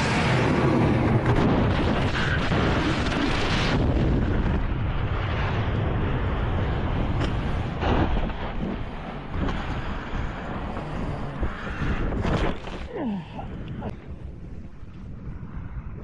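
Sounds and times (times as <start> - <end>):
wind roaring on camera: 0.0 - 16.0.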